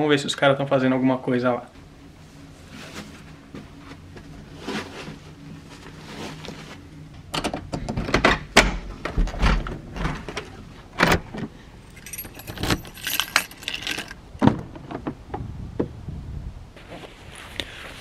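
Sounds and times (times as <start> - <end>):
keys jangling: 11.9 - 14.2.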